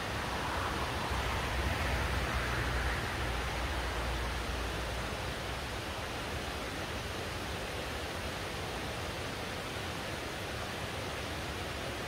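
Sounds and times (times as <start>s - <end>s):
fast-flowing river rushing: 0.0s - 12.0s.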